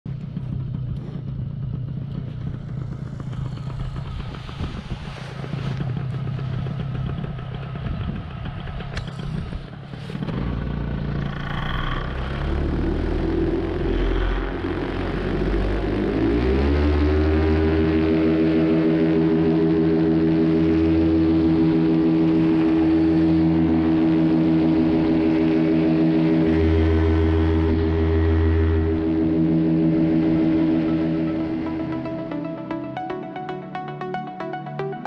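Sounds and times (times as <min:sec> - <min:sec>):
paramotor engine running: 0:00.1 - 0:35.0
music: 0:12.0 - 0:35.0.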